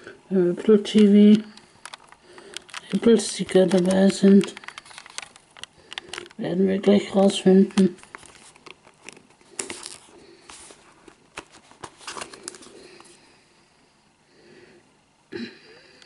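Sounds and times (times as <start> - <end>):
cardboard packaging rustling: 0.8 - 13.2.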